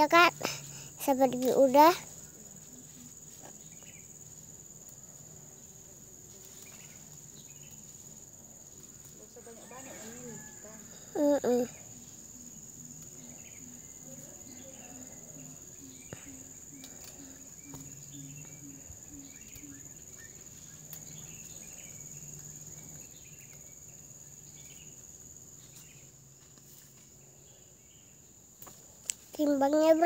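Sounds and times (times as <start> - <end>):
high-pitched insect chorus: 0.0 - 30.0.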